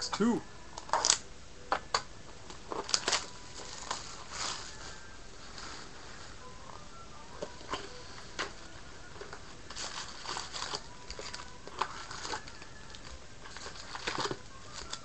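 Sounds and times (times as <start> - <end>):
plastic wrapper crinkling: 2.5 - 5.8, 7.4 - 15.0.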